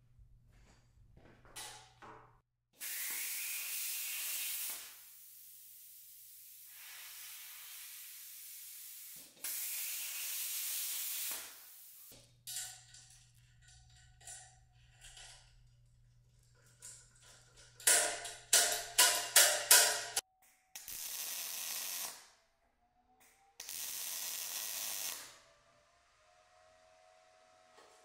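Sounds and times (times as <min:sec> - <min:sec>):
plasma cutter hissing: 0:02.8 - 0:12.1, 0:20.8 - 0:22.2, 0:23.6 - 0:25.3.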